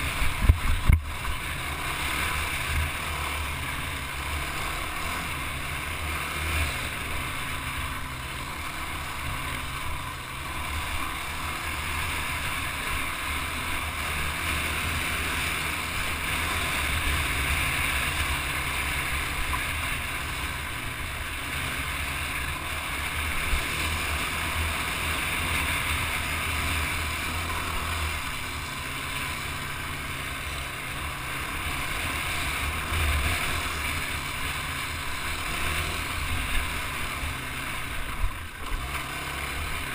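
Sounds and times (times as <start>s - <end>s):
quad engine running: 0.0s - 39.9s.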